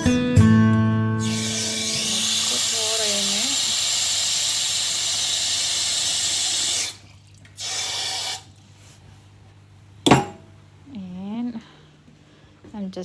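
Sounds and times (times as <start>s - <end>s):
sharp knock: 10.1s - 10.4s.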